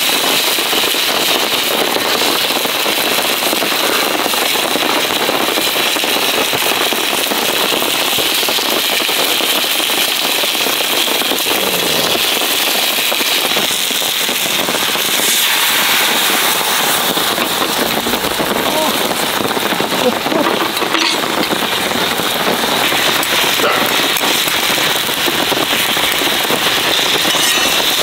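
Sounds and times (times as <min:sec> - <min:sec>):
heavy rain on a tarp: 0:00.0 - 0:28.0
meat sizzling in a frying pan: 0:00.0 - 0:28.0
wood fire crackling: 0:00.0 - 0:28.0
liquid poured into hot pan: 0:07.8 - 0:28.0.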